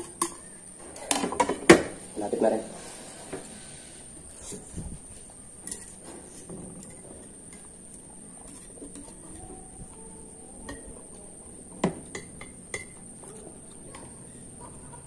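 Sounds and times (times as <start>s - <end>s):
chopsticks tapping ceramic bowls: 10.6s - 15.0s.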